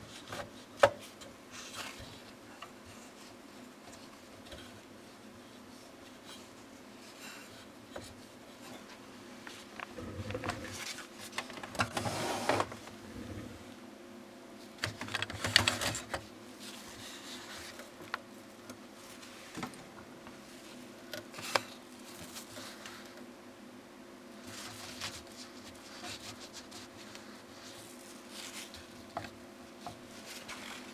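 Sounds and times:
faint steady hum: 0.0s - 30.9s
printer mechanism rattling and clicking: 14.8s - 16.2s.

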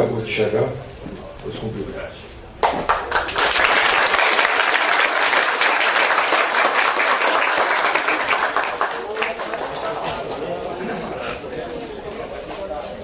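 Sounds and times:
audience applauding: 2.6s - 10.5s.

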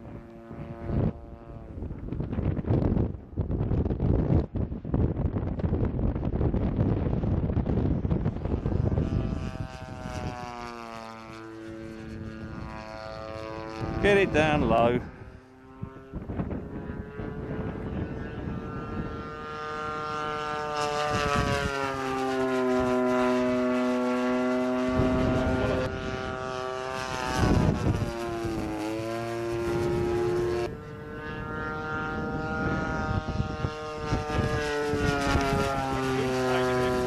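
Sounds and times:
model plane engine: 0.0s - 37.0s
wind buffeting microphone: 0.0s - 37.0s.

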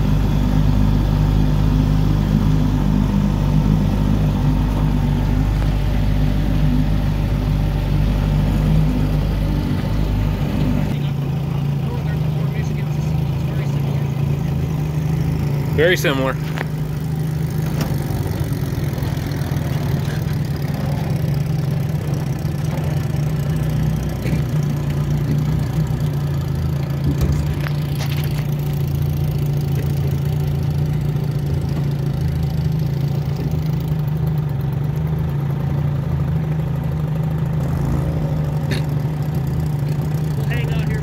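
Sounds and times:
outboard motor running: 0.0s - 41.0s.

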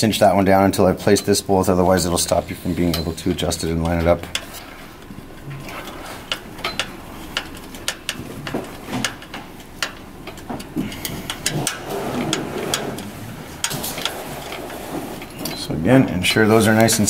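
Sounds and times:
hand tool clicking on bolts: 5.8s - 14.6s.

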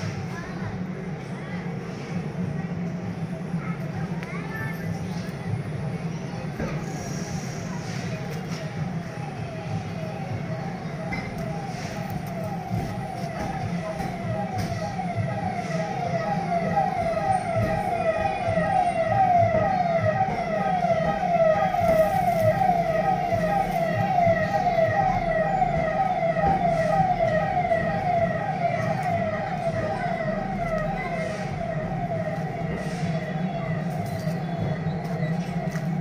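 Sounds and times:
electronic siren tone sweeping: 11.5s - 36.0s.

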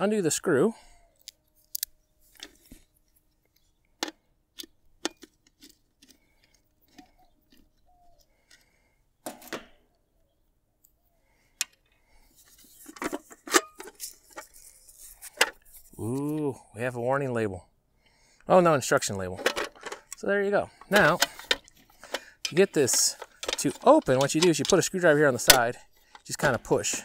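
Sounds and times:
handling noise of enclosure: 11.6s - 16.4s, 19.2s - 27.0s.

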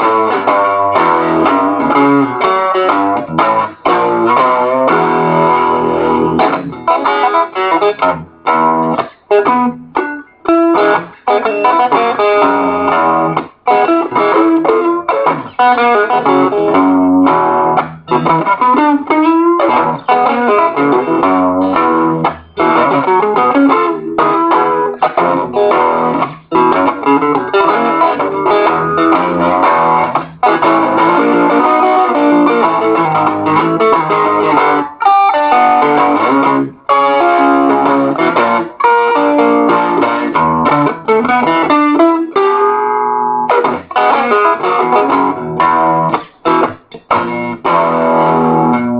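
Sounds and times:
electric guitar blues boogie: 0.0s - 48.9s.

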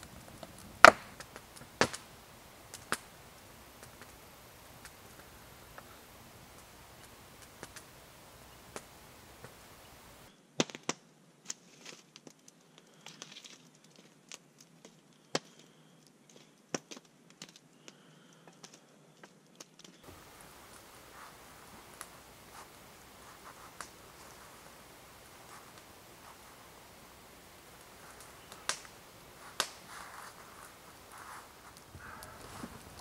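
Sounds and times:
campfire crackling and popping: 0.0s - 33.0s
low steady hiss: 0.0s - 33.0s
faint ticks: 2.7s - 10.3s, 20.1s - 33.0s.

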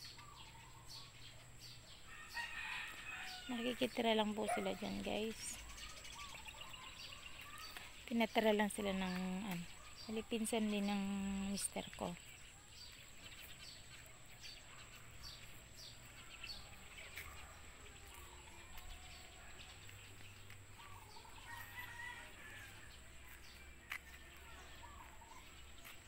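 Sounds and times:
small birds chirping: 0.0s - 26.0s
rooster crowing: 2.1s - 3.5s, 21.4s - 23.0s.

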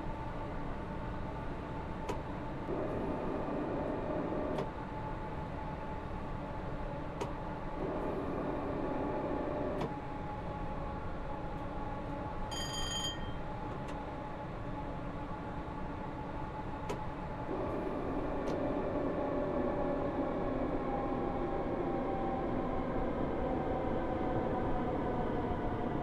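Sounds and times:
electric train rumble and hum: 0.0s - 26.0s
short high-pitched beep: 12.5s - 13.4s.

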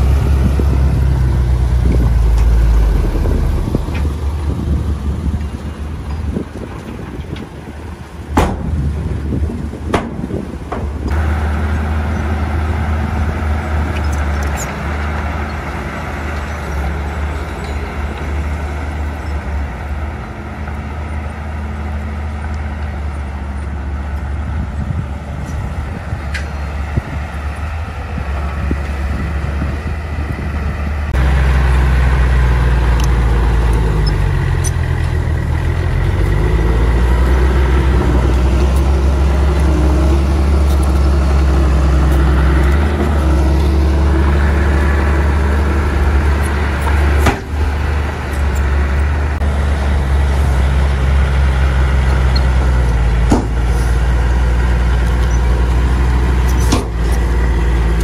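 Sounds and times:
heavy machinery diesel engine: 0.0s - 58.0s
sharp knocks: 8.4s - 8.8s, 9.9s - 11.0s, 53.3s - 53.6s.

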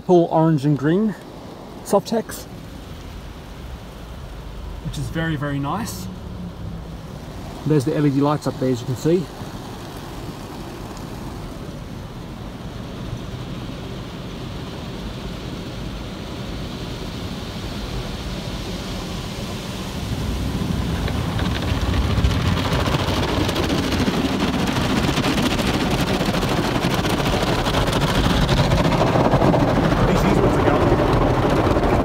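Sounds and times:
car wash water spray: 0.0s - 32.0s
cloth brushes washing car: 18.2s - 31.0s.

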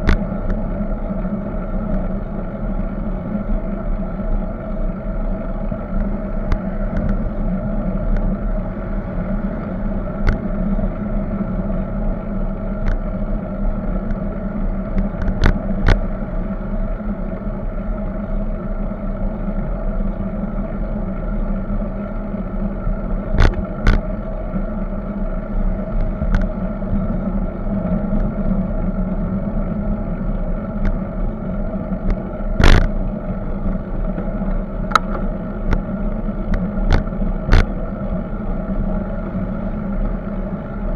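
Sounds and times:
road rumble: 0.0s - 40.9s
wind: 0.0s - 40.9s
sharp clicks and knocks: 23.3s - 24.0s, 32.0s - 33.0s, 34.2s - 35.8s, 36.5s - 37.7s.

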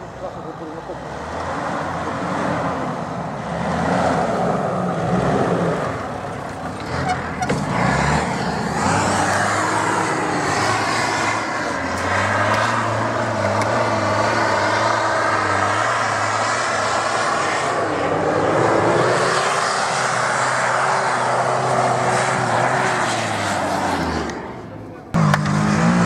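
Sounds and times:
off-road vehicle engine running: 23.9s - 26.0s.

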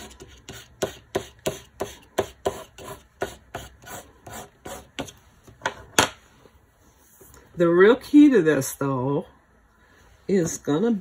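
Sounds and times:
crayon scribbling on paper: 0.0s - 5.1s.

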